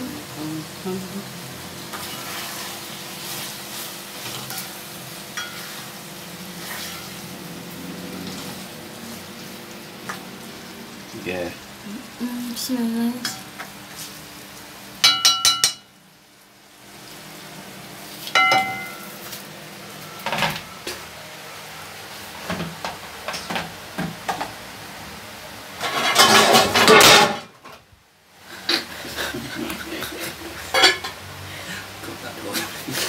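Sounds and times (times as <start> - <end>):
metal pots clattering: 18.4 - 19.0, 25.8 - 27.5, 30.6 - 31.2.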